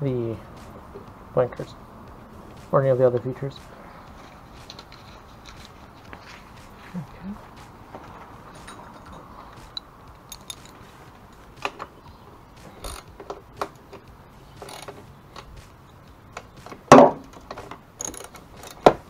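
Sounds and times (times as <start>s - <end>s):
metal parts clinking: 4.1s - 6.3s, 8.5s - 11.9s, 12.8s - 14.0s, 14.6s - 15.5s, 16.6s - 19.0s
ratchet clicking: 9.6s - 10.8s, 12.8s - 15.6s, 16.6s - 19.0s.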